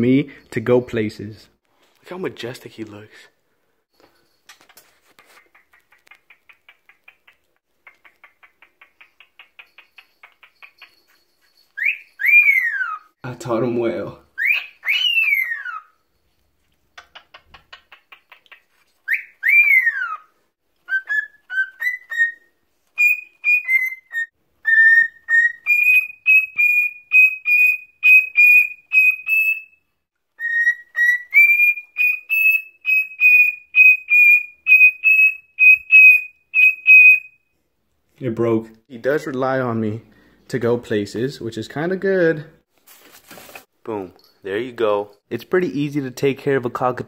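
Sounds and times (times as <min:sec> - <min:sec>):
cockatiel whistling: 0:11.8 - 0:13.1, 0:14.4 - 0:15.9, 0:19.1 - 0:29.8, 0:30.4 - 0:37.4.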